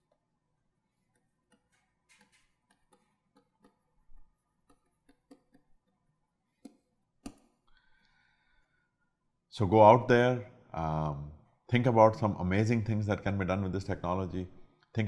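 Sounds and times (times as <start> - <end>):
stylus tapping on tablet: 1.1 - 7.6.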